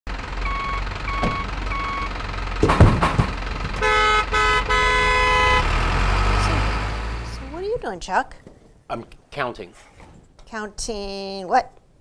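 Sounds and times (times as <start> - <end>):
truck reversing beeps: 0.1 - 2.6, 3.6 - 7.6
sharp thumps: 2.6 - 4.0
truck horn honking: 3.7 - 7.5.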